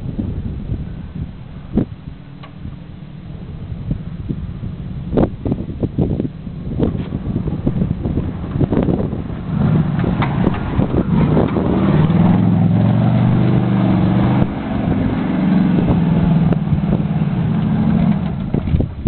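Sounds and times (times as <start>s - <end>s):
wheels spinning in dirt: 2.1s - 19.0s
car engine revving hard: 7.4s - 18.7s.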